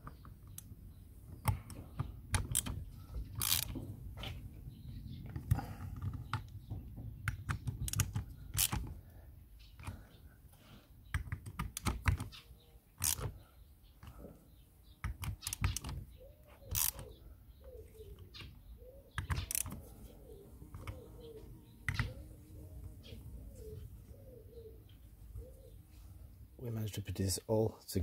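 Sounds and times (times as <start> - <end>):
ratchet clicking: 2.3 - 2.8, 3.4 - 3.8, 7.3 - 8.9, 13.0 - 13.3, 16.7 - 17.1, 19.2 - 19.8
bird calling: 12.2 - 26.4.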